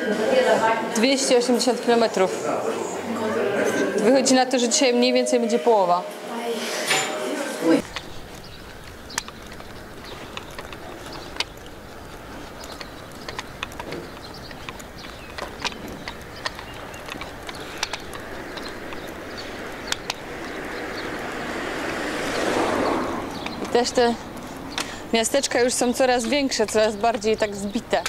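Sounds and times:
vehicle approaching: 0:07.6 - 0:28.0
footsteps on pavement: 0:07.8 - 0:28.0
walking stick tapping: 0:07.8 - 0:28.0.

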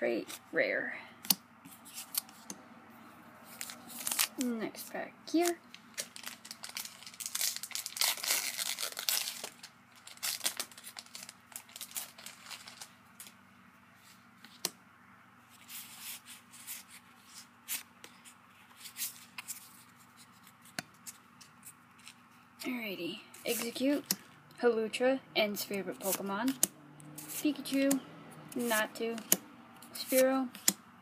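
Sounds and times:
foil wrapper tearing and crinkling: 0:03.5 - 0:04.4, 0:05.4 - 0:13.3.

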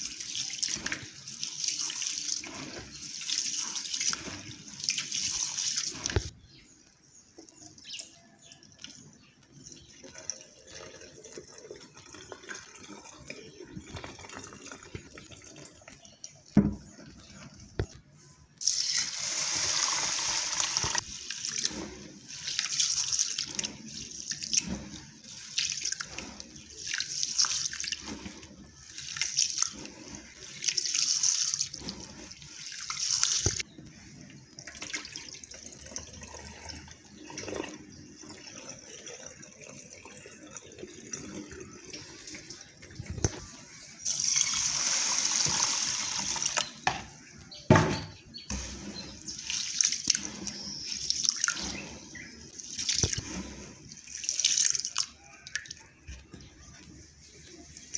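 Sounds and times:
hands swishing rice in water: 0:00.0 - 0:06.3, 0:18.6 - 0:33.6, 0:48.5 - 0:55.8
water pouring into a plastic bowl: 0:00.0 - 0:06.4, 0:07.6 - 0:17.7, 0:18.6 - 0:46.9, 0:48.5 - 0:57.9.

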